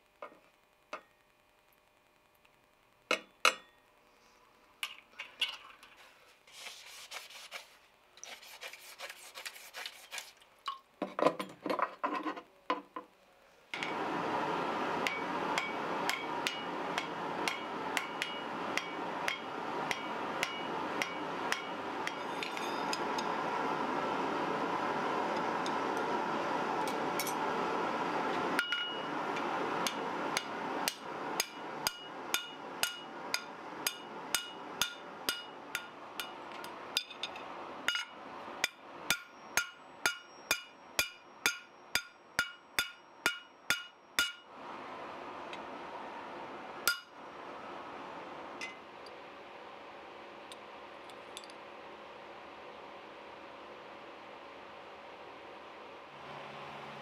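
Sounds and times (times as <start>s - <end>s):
hammer striking metal on anvil: 15.0s - 23.3s, 28.6s - 29.1s, 29.8s - 36.4s, 37.0s - 44.4s, 46.9s - 47.1s.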